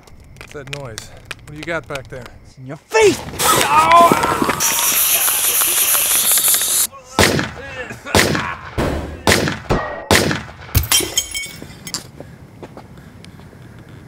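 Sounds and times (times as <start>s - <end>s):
glass tinkling: 10.8s - 12.1s.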